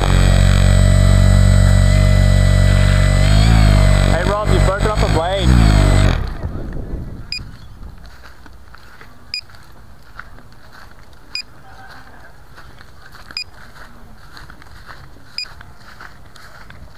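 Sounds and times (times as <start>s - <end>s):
short electronic beeps: 7.3s - 7.5s.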